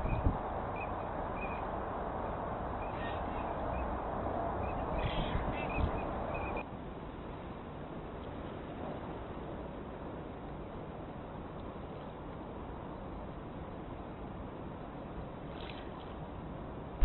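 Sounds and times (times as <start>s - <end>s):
distant waterbirds calling: 0.0s - 6.6s.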